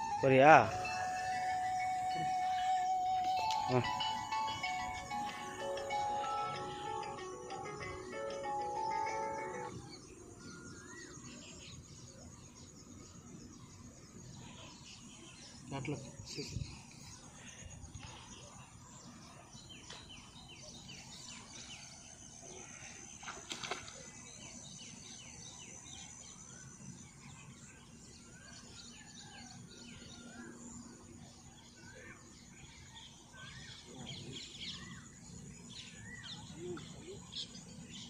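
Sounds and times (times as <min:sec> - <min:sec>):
whistled bird calls: 0:00.0 - 0:04.5
small birds chirping: 0:01.9 - 0:29.2, 0:31.7 - 0:38.0.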